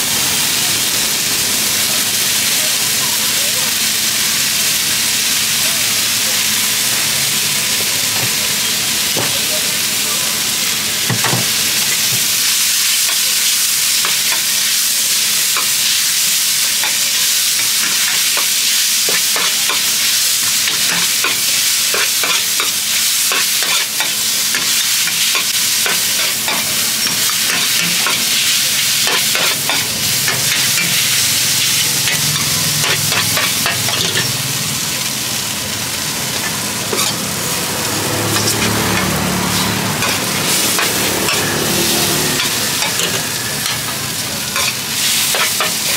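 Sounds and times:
food sizzling in oil in a wok: 0:00.0 - 0:45.9
metal spatula scraping a pan: 0:36.9 - 0:37.3, 0:38.3 - 0:43.9.

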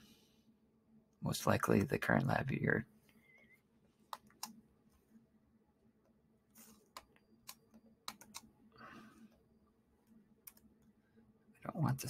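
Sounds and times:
mouse and keyboard clicks: 0:06.6 - 0:08.5.

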